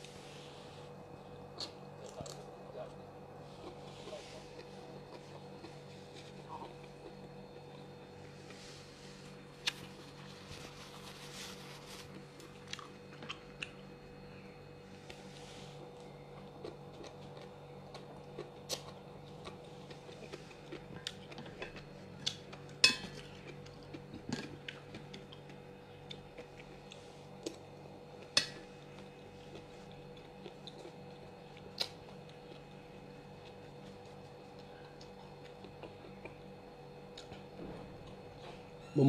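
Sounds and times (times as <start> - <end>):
faint hum: 0.0 - 39.0
utensils clinking against dishes: 22.8 - 23.2.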